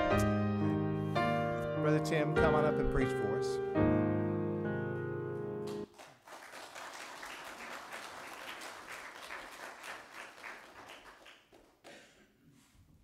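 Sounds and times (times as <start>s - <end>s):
piano chord: 0.0s - 5.8s
congregation applauding: 5.7s - 12.2s.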